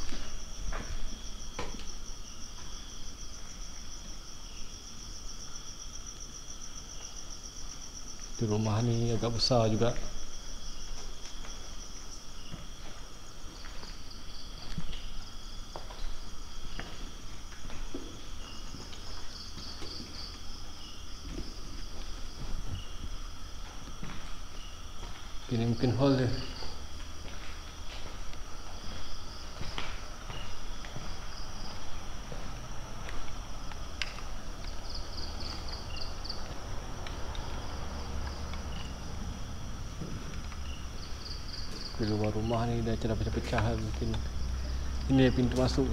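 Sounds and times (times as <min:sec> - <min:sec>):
crickets trilling: 0:00.0 - 0:45.9
night insects chirring: 0:00.0 - 0:45.9.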